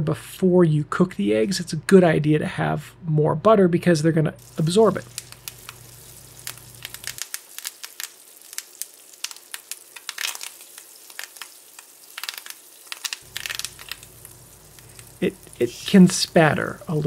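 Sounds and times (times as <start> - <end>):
herbs sizzling in butter: 4.4 - 17.0
sharp crackling pops: 4.4 - 17.0.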